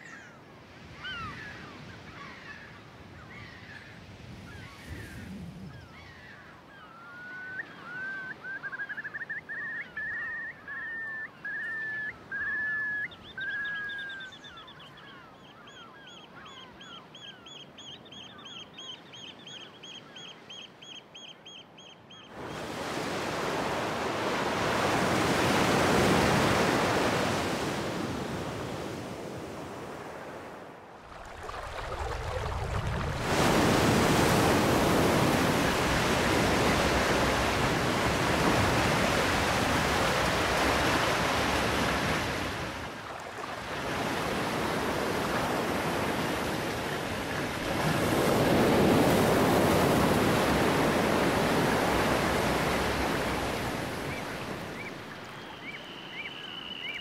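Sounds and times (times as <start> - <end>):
waves breaking and washing: 0.0 - 17.7, 22.3 - 57.0
bird calling: 5.7 - 22.7, 48.1 - 57.0.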